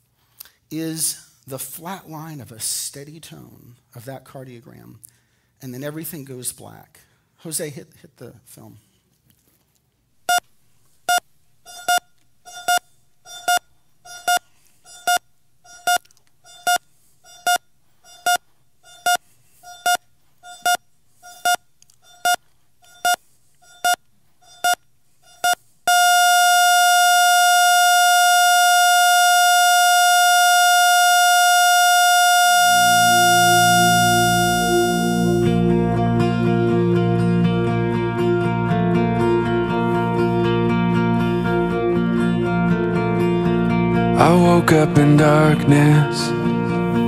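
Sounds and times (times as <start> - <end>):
heart monitor beeping: 10.3 - 35.5
continuous flatline tone: 10.3 - 43.4
soft guitar music: 32.6 - 47.0.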